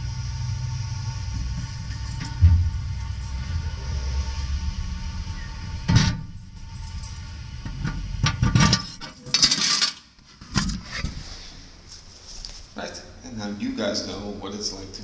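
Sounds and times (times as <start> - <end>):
mailbox slot bumps and scraping: 7.6 - 11.1.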